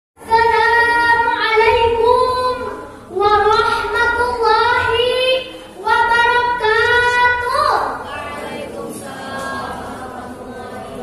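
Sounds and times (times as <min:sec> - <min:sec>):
girl singing into a microphone: 0:00.2 - 0:08.2.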